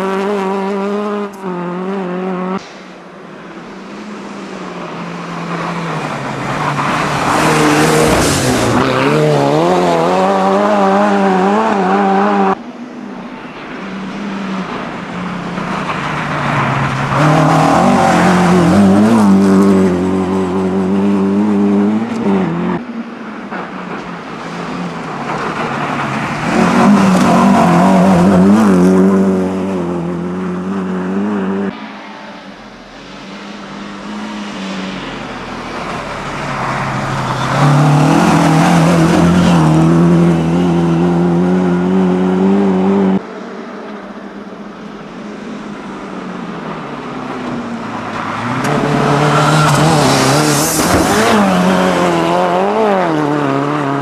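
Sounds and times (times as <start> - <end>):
rally cars revving past: 4.2 - 12.6, 14.0 - 22.9, 33.0 - 43.8, 46.5 - 54.0.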